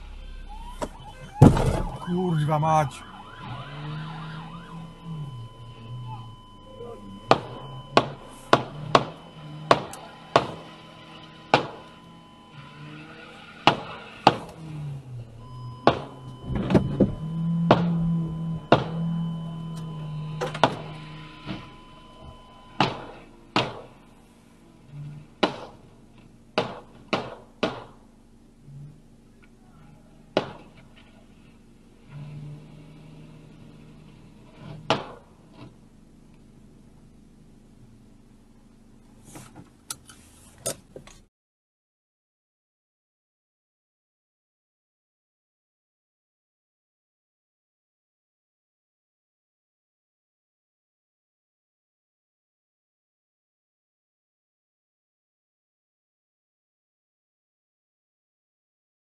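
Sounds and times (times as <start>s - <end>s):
low engine drone: 0.0s - 40.6s
sharp thuds inside a car: 0.7s - 2.1s, 7.2s - 10.6s, 15.8s - 18.0s, 22.3s - 24.0s, 34.8s - 35.8s.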